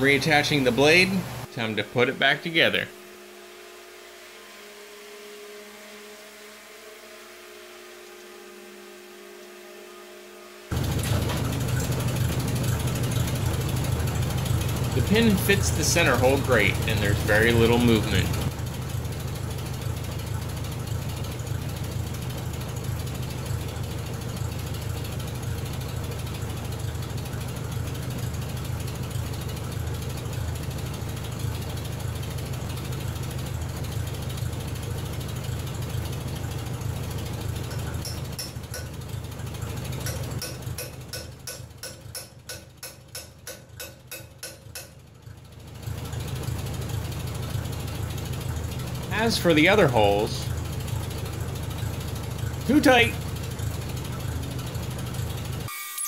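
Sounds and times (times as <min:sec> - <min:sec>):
low hum: 0:00.0 - 0:55.7
rapid mechanical clicking: 0:10.7 - 0:49.2.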